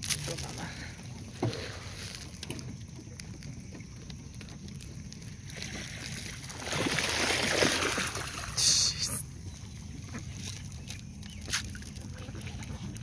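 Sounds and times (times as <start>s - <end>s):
water lapping: 0.0s - 13.0s
ducks splashing across water: 5.5s - 8.6s
loud hiss: 8.6s - 9.2s.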